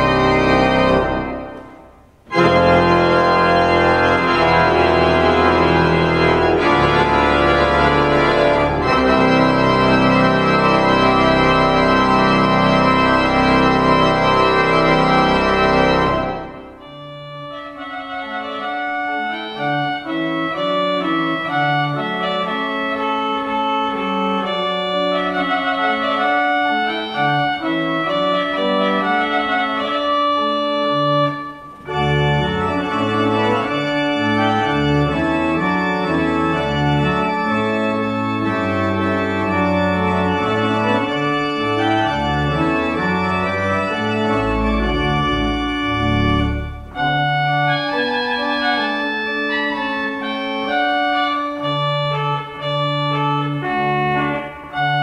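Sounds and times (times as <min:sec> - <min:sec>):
deep organ bass line: 0:00.0 - 0:01.7, 0:02.3 - 0:55.0
organ chords: 0:00.0 - 0:55.0.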